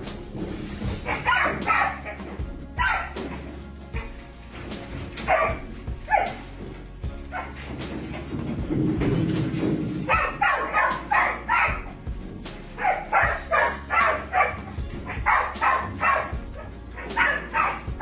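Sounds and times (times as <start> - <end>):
dog barking: 1.0 - 3.4, 5.2 - 6.5, 7.3 - 7.7, 10.1 - 12.0, 12.8 - 18.0.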